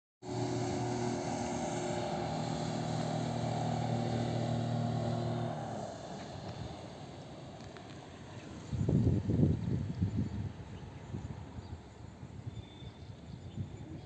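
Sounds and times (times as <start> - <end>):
motorboat engine running: 0.2 - 8.9.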